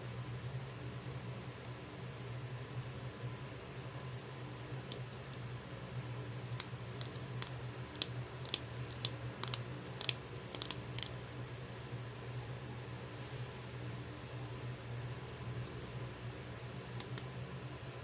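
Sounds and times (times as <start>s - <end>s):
plastic clicks and taps: 6.6s - 11.1s.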